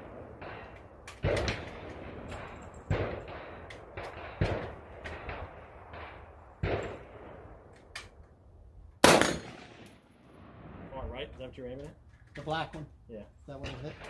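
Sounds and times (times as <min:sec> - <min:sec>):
rifle shots echoing: 0:00.0 - 0:07.7, 0:09.0 - 0:11.0.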